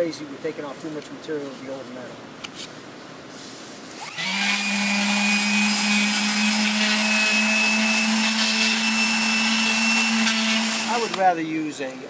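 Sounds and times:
electric sander motor hum: 4.0 - 11.2
sandpaper hissing on metal: 6.1 - 11.4.

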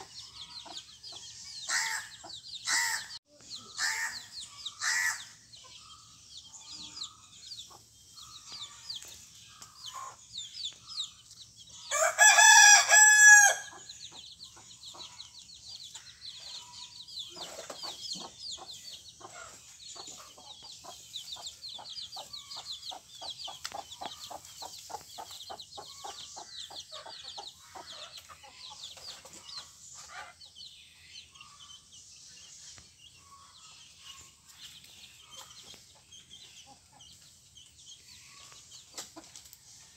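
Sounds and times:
chicks peeping: 0.0 - 39.9
rooster crowing: 11.9 - 13.7.

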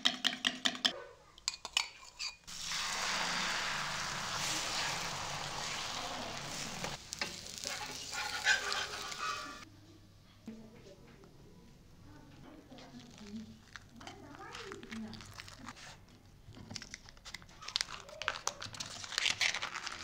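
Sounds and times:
egg sizzling in frying pan: 2.5 - 9.7.

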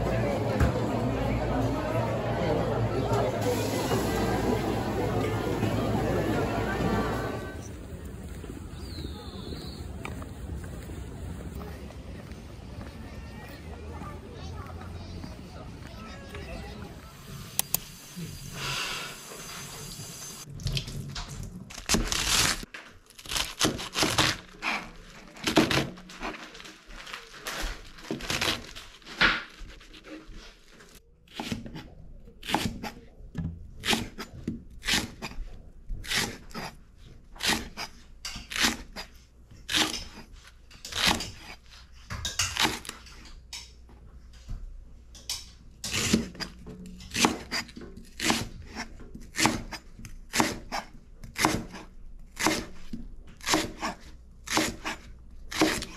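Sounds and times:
knife slicing vegetables: 33.8 - 43.1, 45.8 - 55.9.

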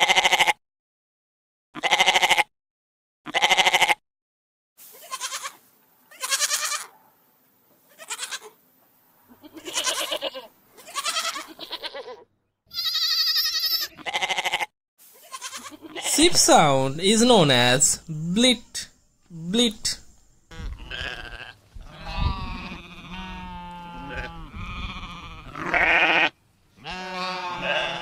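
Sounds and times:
goats bleating: 0.0 - 0.6, 1.8 - 2.4, 3.3 - 4.0, 4.9 - 6.9, 7.9 - 8.6, 9.3 - 16.4, 20.5 - 28.0.

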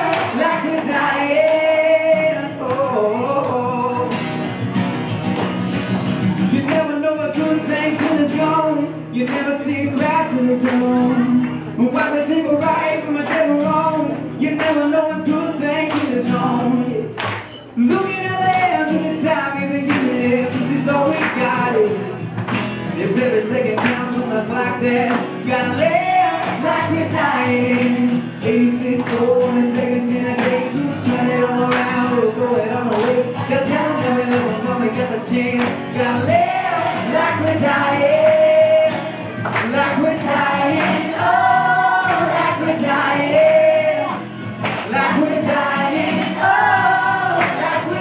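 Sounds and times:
young voices singing along: 0.0 - 3.1, 25.6 - 31.8, 35.9 - 48.0
man singing: 0.0 - 4.4, 6.4 - 22.2, 22.8 - 48.0
acoustic guitar strumming: 0.0 - 48.0.

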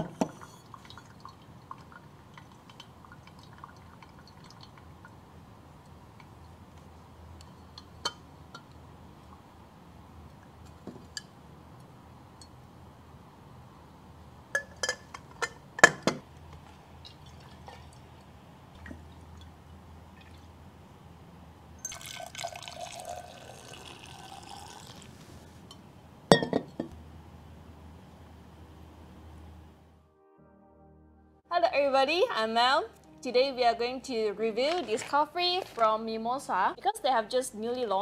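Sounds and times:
coffee pouring into a glass: 0.2 - 4.9, 17.1 - 18.1, 21.8 - 25.4
glassware clinking: 14.6 - 16.2, 21.8 - 24.8, 26.3 - 26.9.

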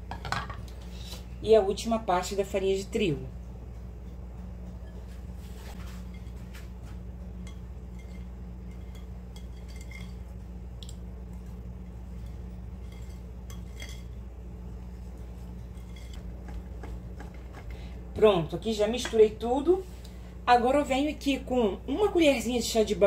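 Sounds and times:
steady low hum: 0.0 - 23.0
whisk clinking against glass: 7.4 - 10.3, 12.8 - 14.2
wire whisk stirring batter: 7.4 - 10.4, 11.4 - 14.2, 14.9 - 17.9.

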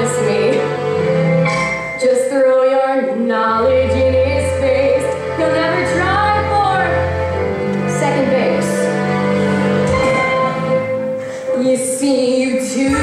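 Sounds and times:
instrumental accompaniment: 0.0 - 13.0
woman singing show tune: 11.5 - 13.0.

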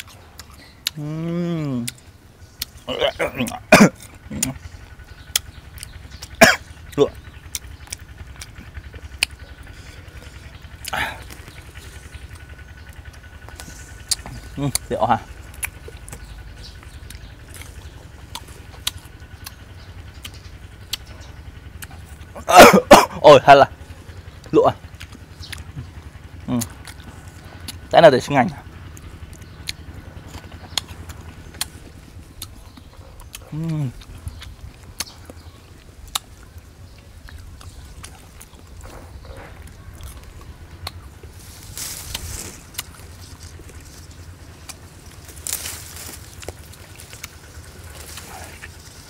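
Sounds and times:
faint low rumble: 0.0 - 49.0
crisp chewing clicks: 1.8 - 22.4, 24.1 - 28.0, 28.6 - 49.0
loud vocal outburst: 22.4 - 23.4.

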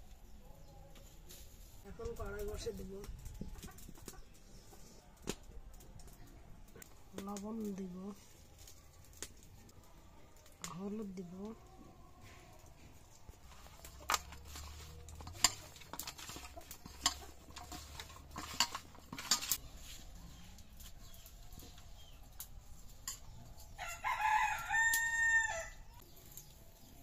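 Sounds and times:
rooster crowing: 23.8 - 25.9.

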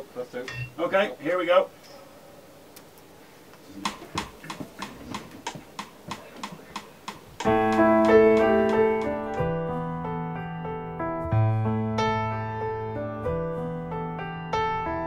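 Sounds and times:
steady ticking: 3.8 - 9.6
grand piano chords: 7.3 - 15.0.

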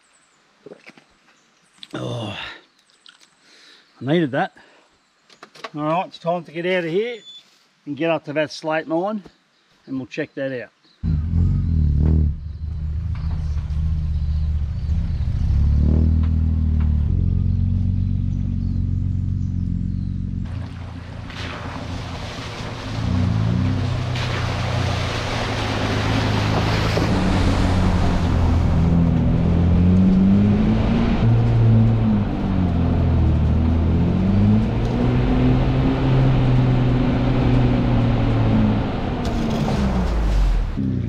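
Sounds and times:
car engine drone: 11.0 - 41.0
tyre and road noise: 11.0 - 41.0.

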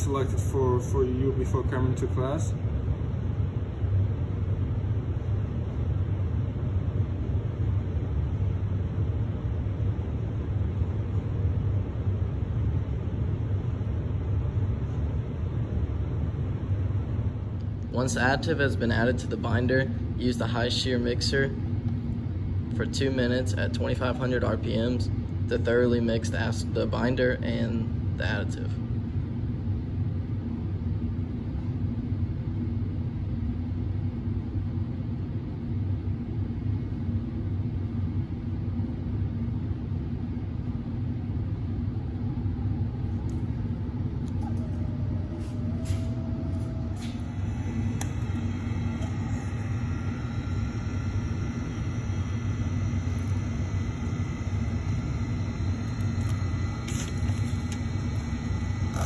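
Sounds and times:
high steady whine: 0.0 - 59.0
overhead stirrer humming: 40.4 - 59.0.

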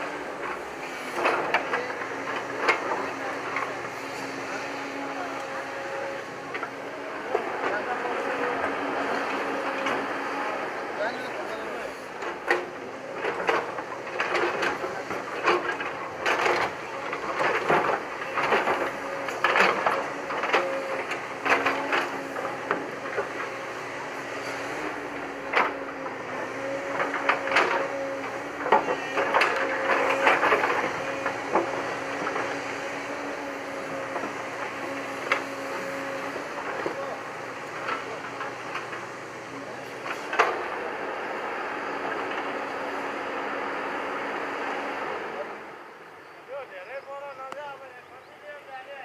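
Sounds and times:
excavator engine humming: 0.0 - 48.7.

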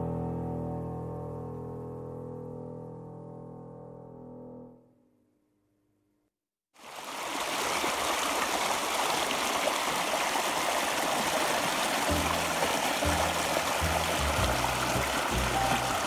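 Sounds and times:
river rushing over rocks: 6.9 - 16.0.

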